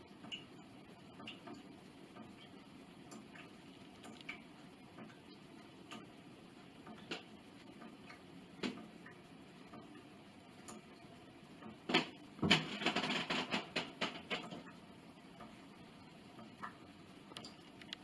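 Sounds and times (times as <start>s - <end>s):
light clicks and taps: 1.2s - 4.4s, 16.4s - 18.0s.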